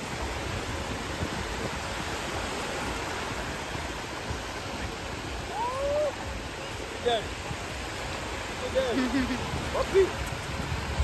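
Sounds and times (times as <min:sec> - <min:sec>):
small waves breaking in surf: 0:00.0 - 0:11.0
short high cry: 0:05.5 - 0:06.1.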